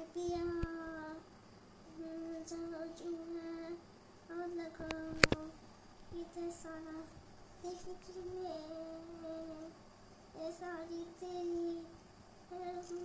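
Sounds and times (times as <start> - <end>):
child singing: 0.0 - 1.2, 1.9 - 9.8, 10.4 - 13.0
sharp click: 4.8 - 5.5.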